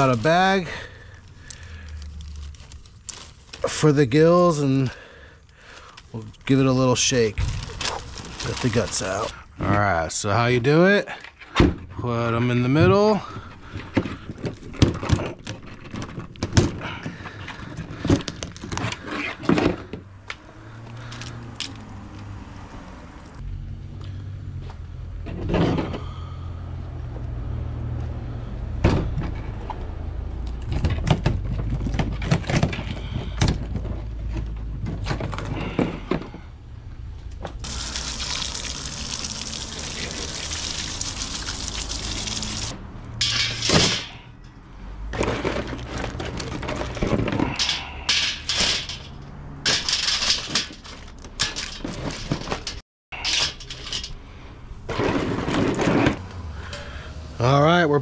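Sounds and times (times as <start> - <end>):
garden hose spraying water: 37.6 - 42.7
shells clattering in metal basket: 43.2 - 44.2, 46.7 - 54.2.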